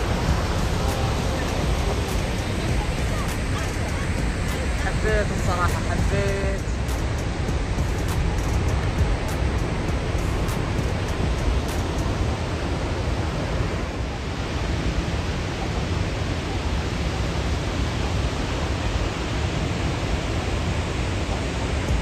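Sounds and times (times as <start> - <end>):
deep rumble: 0.0 - 12.4
waterfall rushing: 0.0 - 22.0.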